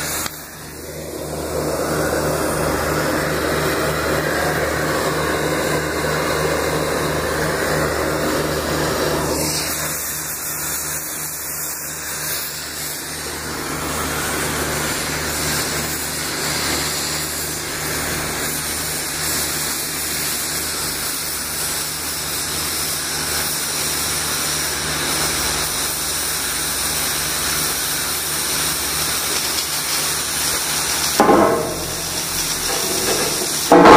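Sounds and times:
cutting torch flame hissing: 0.0s - 33.9s
rush of noise: 0.4s - 5.3s.

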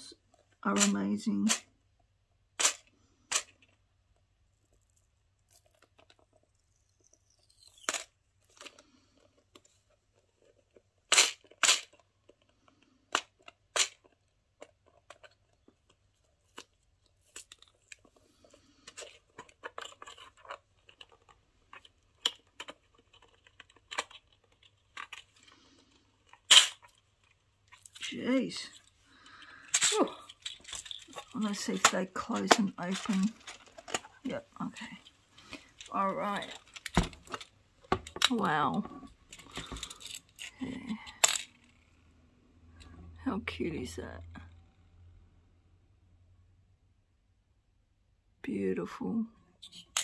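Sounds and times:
plastic crinkling and tearing: 4.6s - 41.4s.

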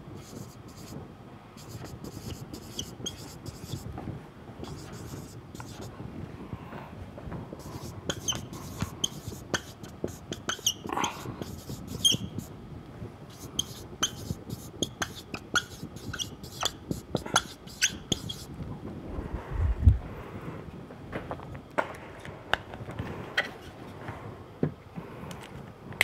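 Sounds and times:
marker squeaking on whiteboard: 0.2s - 1.0s, 1.6s - 3.9s, 4.6s - 5.9s, 7.6s - 12.5s, 13.3s - 18.5s.

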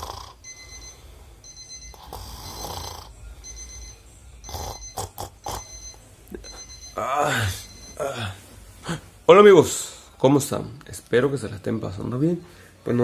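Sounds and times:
man snoring: 0.0s - 0.4s, 1.9s - 3.2s, 4.4s - 6.0s
electronic alarm beeping: 0.2s - 8.4s.

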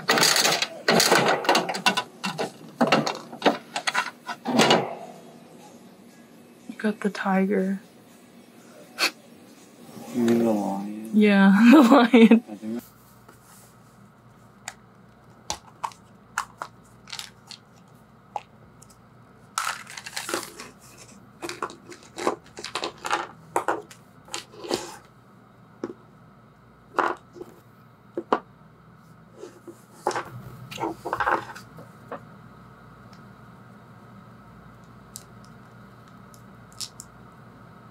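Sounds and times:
packaging crinkling and rustling: 15.7s - 18.0s, 19.6s - 20.8s, 21.4s - 23.3s.

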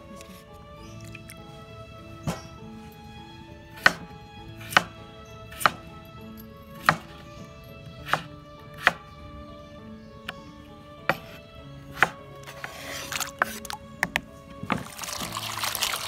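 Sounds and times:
soft background music: 0.0s - 16.0s
knife slicing potato: 4.6s - 4.9s
knife knocking on wooden board: 11.1s - 11.4s.

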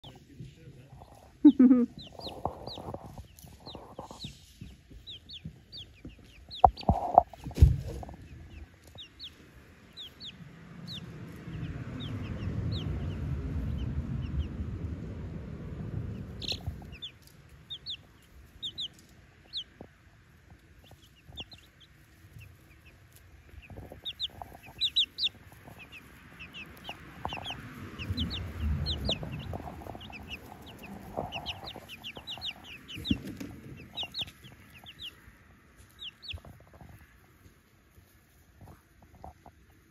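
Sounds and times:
chicks peeping: 0.0s - 39.9s
low rumble: 8.0s - 20.2s, 23.1s - 36.5s.

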